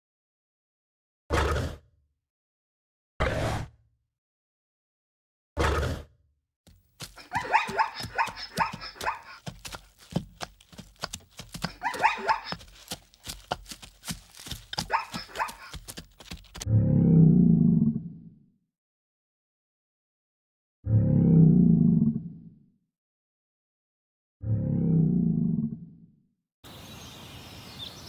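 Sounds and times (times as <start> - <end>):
animal calling: 7.0 - 16.6.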